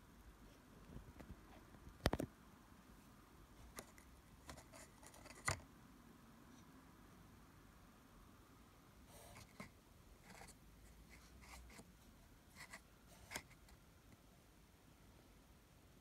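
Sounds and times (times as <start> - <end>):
handling scratches and clicks: 3.6 - 5.6, 12.5 - 14.2.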